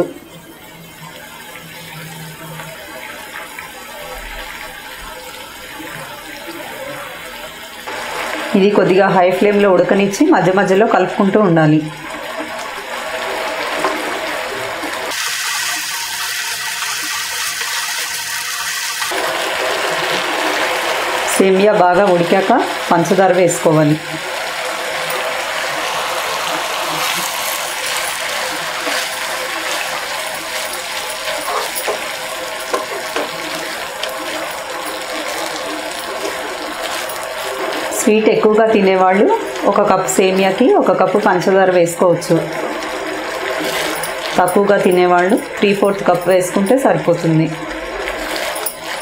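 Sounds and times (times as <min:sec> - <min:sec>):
noodles boiling in water: 0:00.0 - 0:49.0
wooden spatula stirring: 0:25.1 - 0:38.8, 0:42.5 - 0:46.6.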